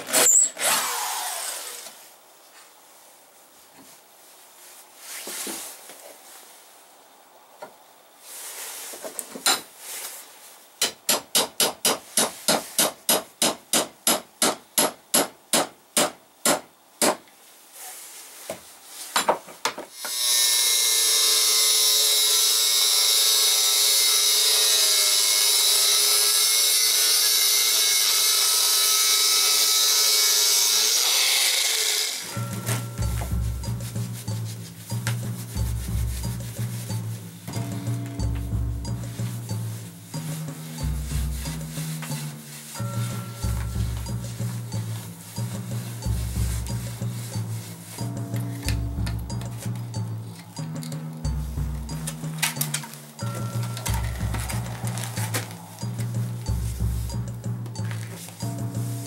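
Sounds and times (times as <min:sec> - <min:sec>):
angle grinder cutting steel: 0:00.0 - 0:01.9, 0:20.0 - 0:32.9.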